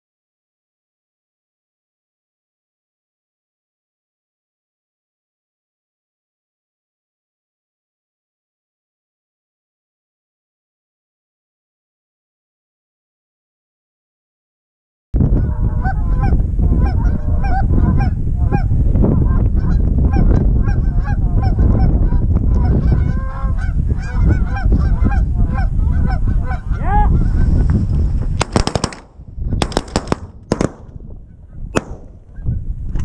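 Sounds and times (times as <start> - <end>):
wind rumbling on microphone: 15.2 - 33.0
geese honking: 15.4 - 27.6
shotgun shots: 28.4 - 31.0, 31.7 - 32.3.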